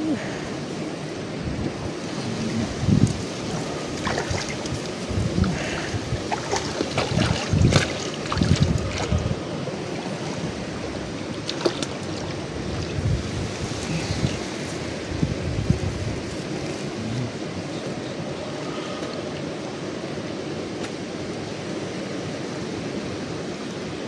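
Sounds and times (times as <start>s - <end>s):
wind on microphone: 0.0s - 21.1s
reeds rustling: 1.7s - 17.7s.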